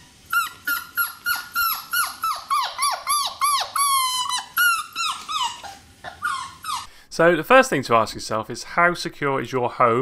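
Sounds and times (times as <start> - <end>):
puppy whining: 0.0 - 6.9.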